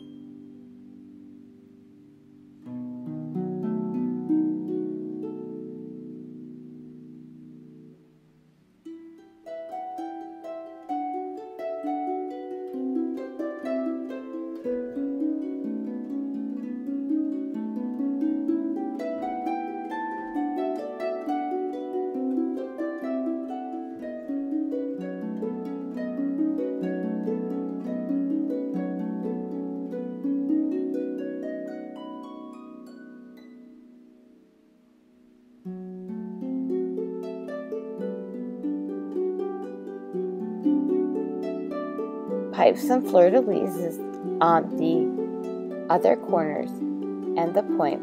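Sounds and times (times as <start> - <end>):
plucked-string melody: 0.0 - 48.0.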